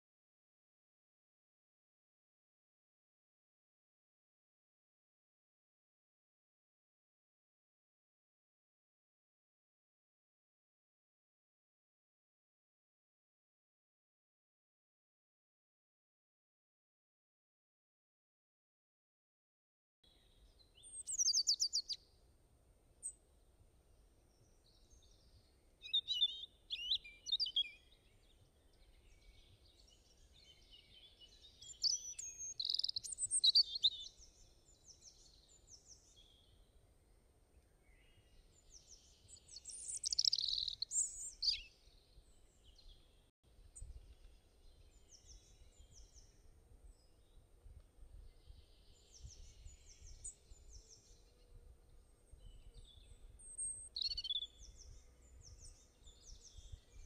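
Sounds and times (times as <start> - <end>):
birds chirping and singing: 20.8 - 22.0, 24.5 - 36.6, 37.9 - 43.2, 52.1 - 57.0.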